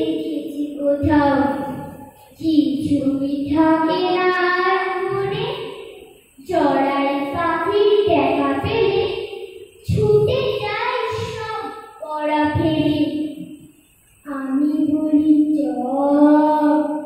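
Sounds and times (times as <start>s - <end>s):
children singing together: 3.5s - 11.8s.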